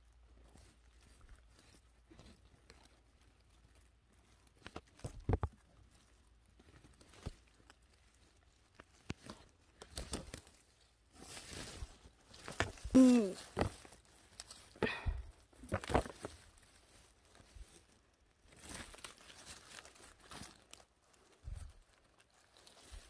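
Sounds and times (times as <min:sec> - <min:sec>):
rustling of forest litter: 0:00.0 - 0:23.0
twigs snapping: 0:06.6 - 0:11.4, 0:12.3 - 0:14.8.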